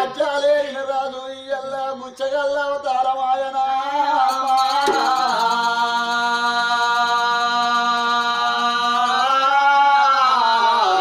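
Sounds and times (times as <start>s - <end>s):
person singing folk song: 0.0s - 11.0s.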